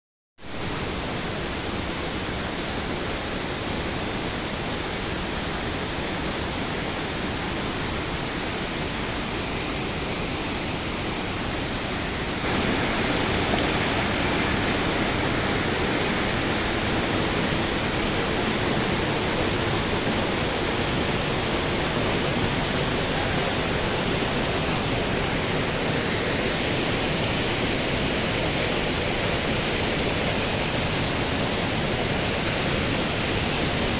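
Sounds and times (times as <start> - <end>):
river water rushing over rocks: 0.5 - 33.9.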